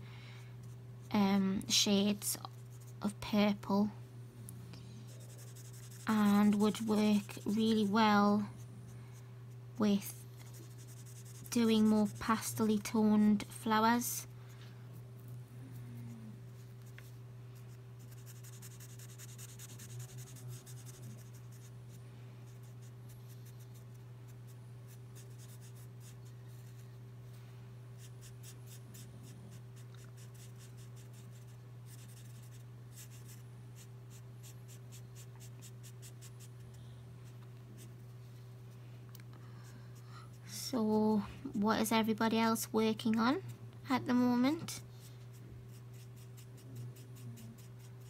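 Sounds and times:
low hum: 0.0s - 30.2s
marker scratching on paper: 5.1s - 8.0s, 10.4s - 12.8s, 18.0s - 21.7s, 24.9s - 26.8s, 30.2s - 36.6s, 45.7s - 48.0s.

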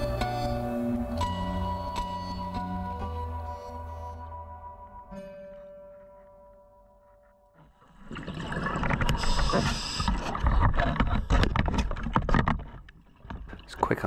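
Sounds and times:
exhaled bubbles rumbling underwater: 7.8s - 11.7s.

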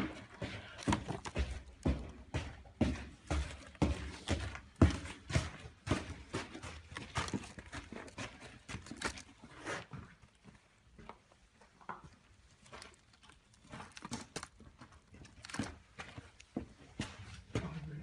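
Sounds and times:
boxes knocking when handled: 0.0s - 7.7s
plastic wrapping crinkling: 12.6s - 15.9s.

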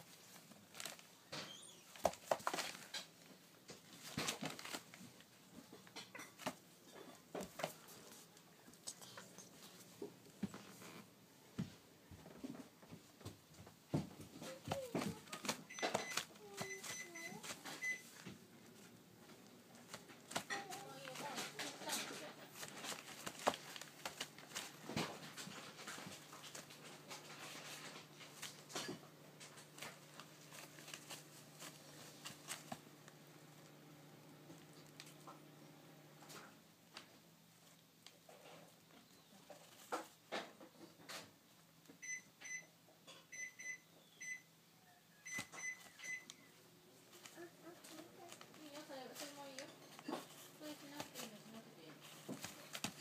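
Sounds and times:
chicks scratching on paper: 14.4s - 18.2s, 19.7s - 28.6s, 47.0s - 53.0s.

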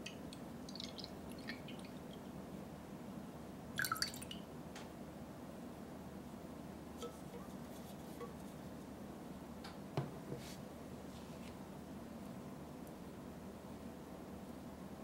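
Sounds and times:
faint room hiss: 0.0s - 15.0s.

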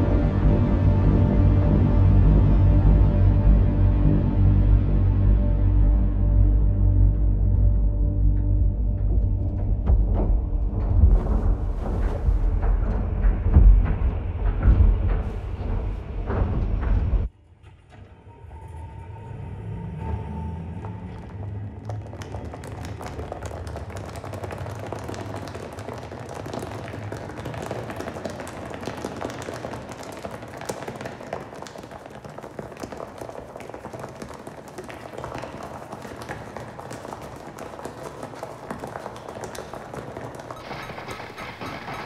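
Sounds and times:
crowd footsteps on hard floor: 7.5s - 17.3s, 20.8s - 42.0s.

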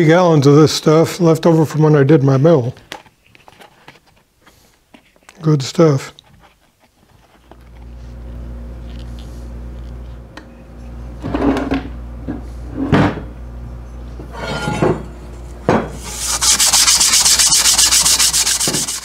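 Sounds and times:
metal parts clunking and scraping: 14.2s - 16.1s
rapid rhythmic scrubbing: 16.0s - 19.0s.

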